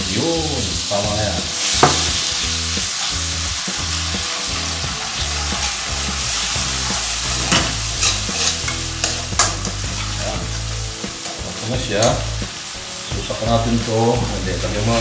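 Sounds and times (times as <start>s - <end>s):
food sizzling in a wok: 0.0s - 15.0s
metal spoon scraping a pan: 2.9s - 3.3s, 4.3s - 10.5s.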